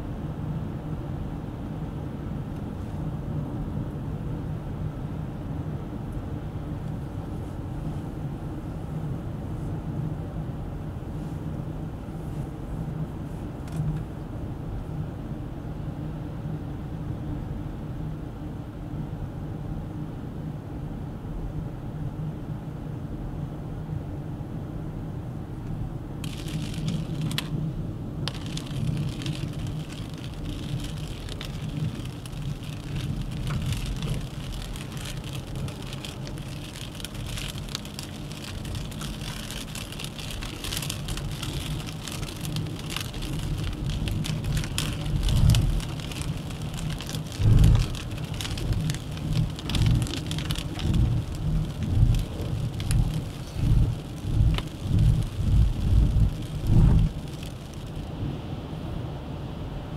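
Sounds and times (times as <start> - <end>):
car engine and tyres rumbling: 0.0 - 59.9
rain pattering on a car: 25.6 - 58.5.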